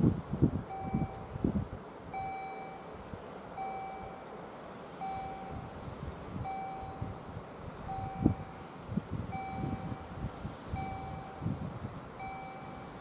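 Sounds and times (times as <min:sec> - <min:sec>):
low gusty rumbling: 0:00.0 - 0:03.6, 0:04.6 - 0:13.0
level crossing signal beeping: 0:00.7 - 0:01.3, 0:02.1 - 0:03.0, 0:03.6 - 0:04.3, 0:05.0 - 0:13.0.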